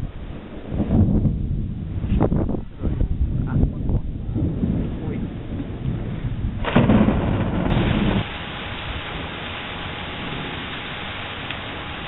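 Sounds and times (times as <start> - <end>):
thunder rumbling: 0.0 - 12.0
rain hissing: 6.7 - 12.0.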